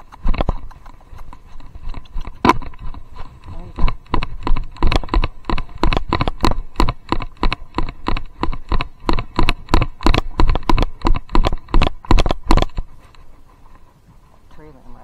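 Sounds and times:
camera knocking in its mount: 3.8s - 12.8s.

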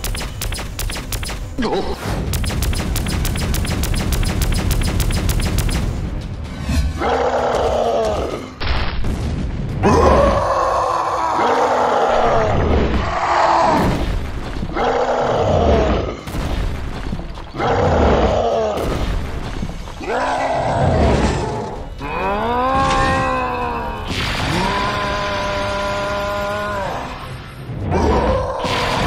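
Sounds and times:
cartoon rough roars: 9.8s - 13.8s.

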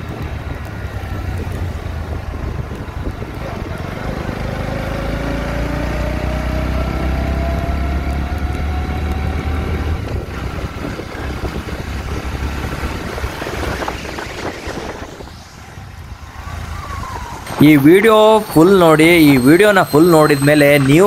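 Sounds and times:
motorcycle engine running: 0.0s - 15.0s
heavy wind noise: 0.0s - 21.0s.

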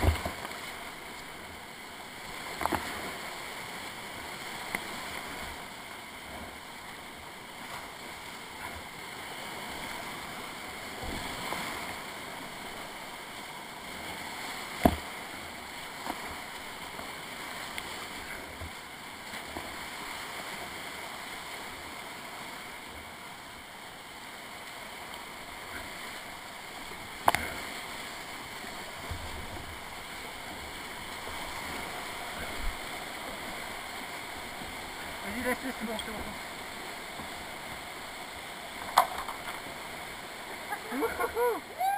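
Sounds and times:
sharp knocks on kayak: 0.0s - 0.4s, 14.8s - 15.1s, 38.8s - 39.6s
whitewater rapids rushing: 24.0s - 41.9s.

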